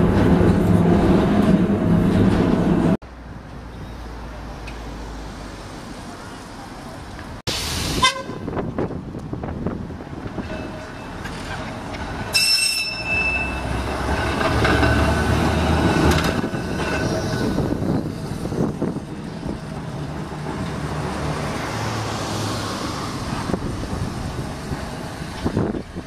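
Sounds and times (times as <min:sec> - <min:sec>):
tram rumbling along rails: 0:00.0 - 0:26.0
high ringing tone: 0:12.3 - 0:13.8.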